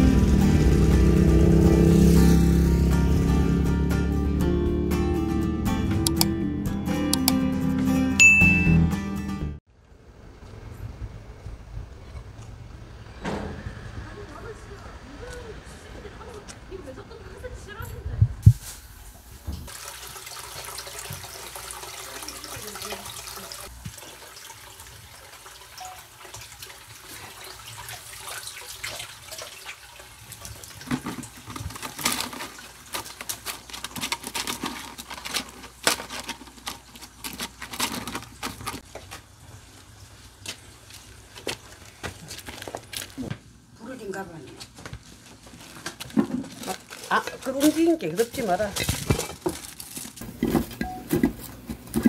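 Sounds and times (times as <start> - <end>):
water splashing and dripping: 19.5 - 33.5.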